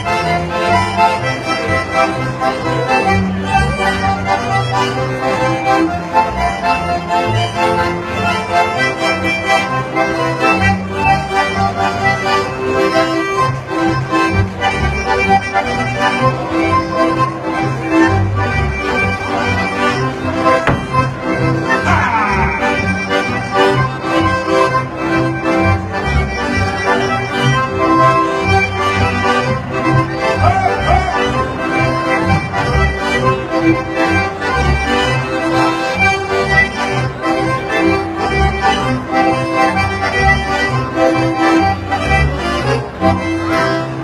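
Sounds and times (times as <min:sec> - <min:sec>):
button accordions playing folk tune: 0:00.0 - 0:44.0
double bass steady beat: 0:17.0 - 0:43.7.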